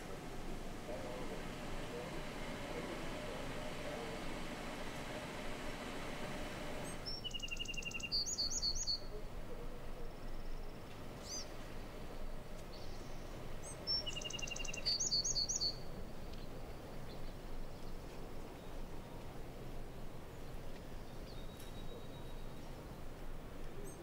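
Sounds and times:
outdoor background hiss: 0:00.0 - 0:24.0
songbird singing: 0:05.8 - 0:24.0.

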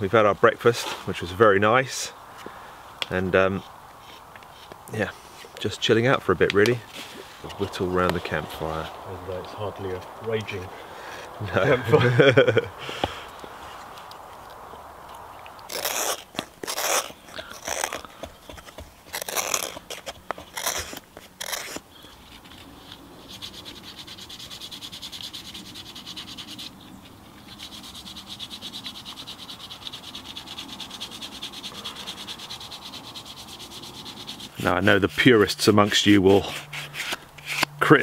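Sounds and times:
sandpaper rubbing on wood: 0:15.7 - 0:18.0, 0:18.7 - 0:26.8, 0:27.4 - 0:37.7
scraping wooden spoon: 0:27.4 - 0:37.7.

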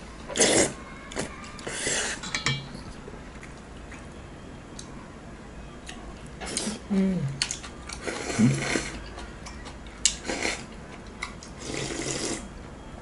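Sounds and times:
people slurping broth: 0:00.3 - 0:02.2, 0:08.0 - 0:09.0, 0:11.6 - 0:12.5
low hum of a voice: 0:06.5 - 0:07.5.

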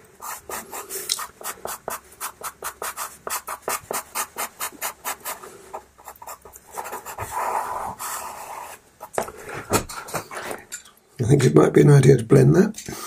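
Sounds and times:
pastel pencil scratching on paper: 0:00.2 - 0:09.2.

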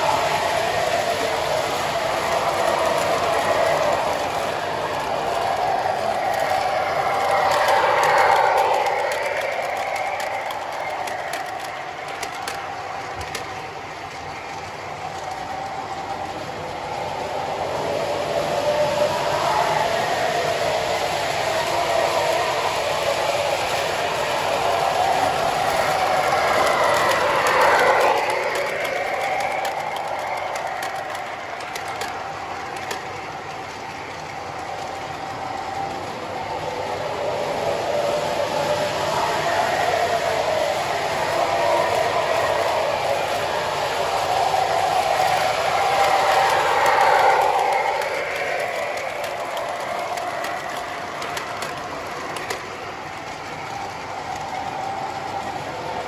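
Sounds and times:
model train motor whine: 0:00.0 - 0:56.0
clicks over rail joints: 0:01.2 - 0:15.7, 0:24.6 - 0:36.0.

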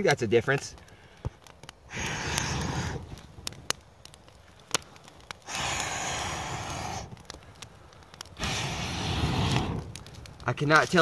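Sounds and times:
burning kindling popping: 0:00.0 - 0:11.0
person blowing air on fire: 0:01.9 - 0:03.2, 0:05.4 - 0:07.4, 0:08.4 - 0:10.1.

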